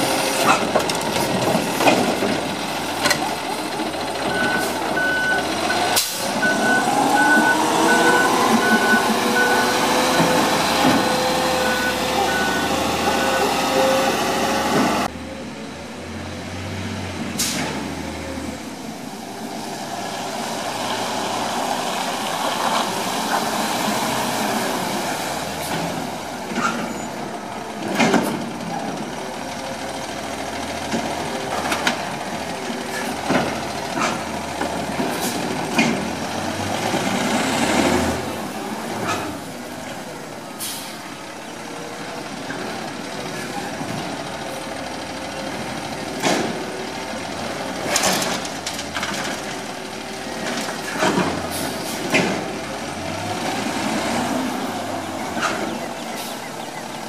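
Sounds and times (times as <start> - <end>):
garbage truck engine running: 0.0 - 57.0
beeping alarm: 4.3 - 14.0.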